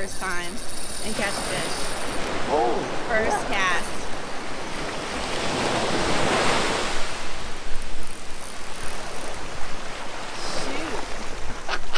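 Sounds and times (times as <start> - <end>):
ocean surf breaking: 0.0 - 11.9.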